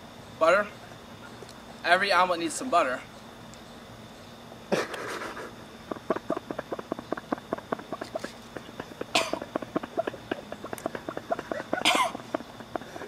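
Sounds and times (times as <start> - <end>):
man choking and gagging: 4.7 - 13.0
man spitting: 4.7 - 13.0
man coughing: 4.8 - 13.0.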